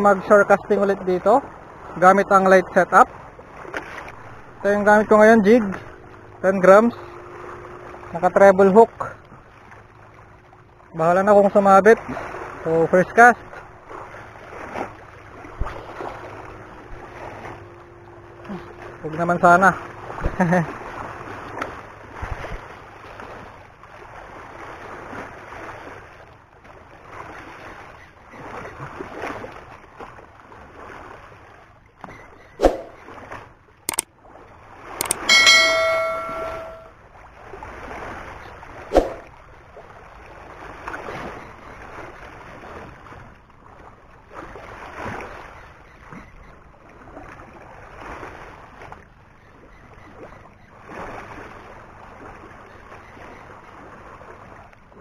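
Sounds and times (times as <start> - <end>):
small waves washing against shore: 0.0 - 55.0
sharp clicks: 35.0 - 35.3
bright bell-like chime: 35.0 - 36.9.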